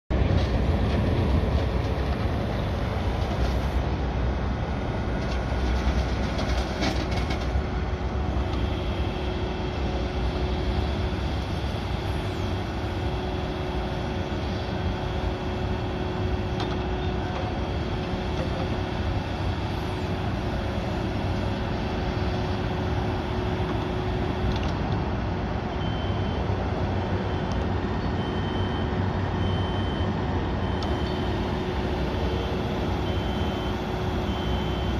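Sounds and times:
excavator diesel engine running: 0.1s - 34.9s
hydraulic whine: 25.7s - 34.9s.

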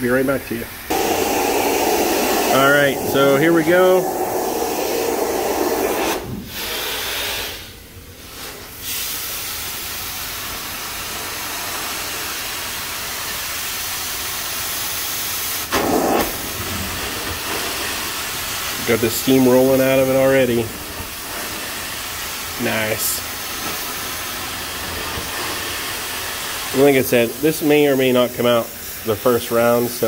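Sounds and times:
carpet extraction wand hissing: 0.8s - 29.9s.

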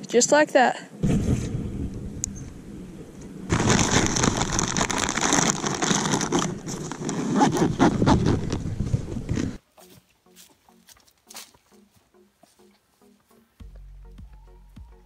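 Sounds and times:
pine needles crunching: 3.5s - 11.9s
jacket and gear rustling: 3.5s - 13.5s.

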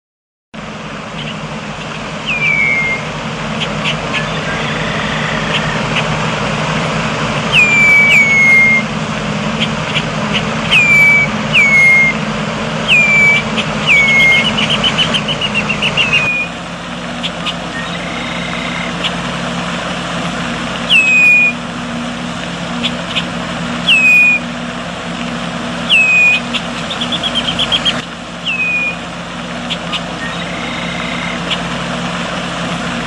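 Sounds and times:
steady low hum: 0.6s - 33.0s
bird chattering run: 1.1s - 6.2s, 7.5s - 8.8s, 9.5s - 12.1s, 12.8s - 16.6s, 17.2s - 19.3s, 20.8s - 21.6s, 22.7s - 24.4s, 25.9s - 29.0s, 29.6s - 31.7s
blackbirds whistling calls: 1.1s - 6.2s, 7.4s - 19.3s, 20.8s - 21.6s, 22.7s - 24.6s, 25.8s - 31.9s
sharp check notes: 9.5s - 12.2s.

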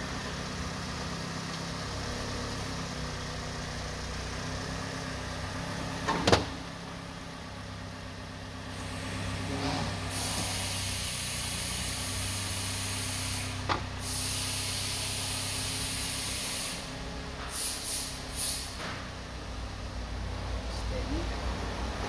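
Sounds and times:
short hisses: 8.8s - 16.9s, 17.5s - 18.8s.

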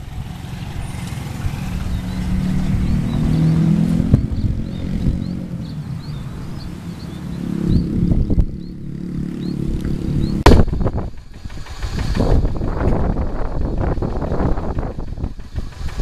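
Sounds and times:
diesel engine running: 0.0s - 16.0s
sharp engine knock: 10.4s - 16.0s.

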